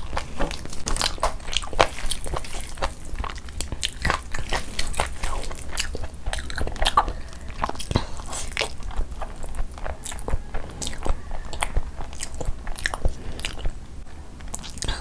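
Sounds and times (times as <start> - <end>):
wet chewing of rice: 0.0 - 15.0.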